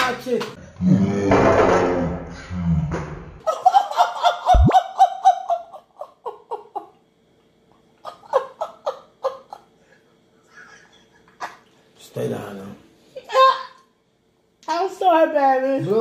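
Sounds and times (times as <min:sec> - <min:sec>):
person laughing: 0:04.5 - 0:05.0.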